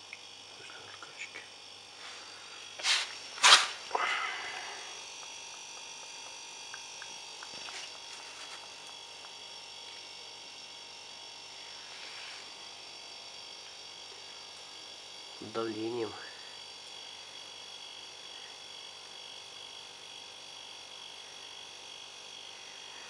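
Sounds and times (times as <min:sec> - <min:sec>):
oil pump hum: 0:02.0 - 0:10.1.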